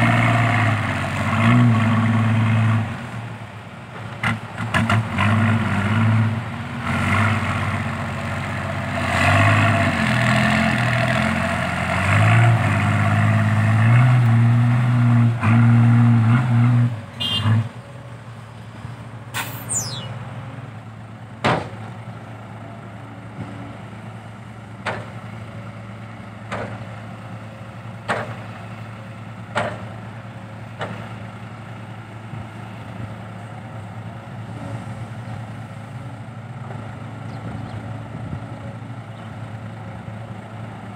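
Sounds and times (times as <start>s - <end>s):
diesel truck engine: 0.0s - 40.9s
sharp knocks: 21.4s - 21.8s.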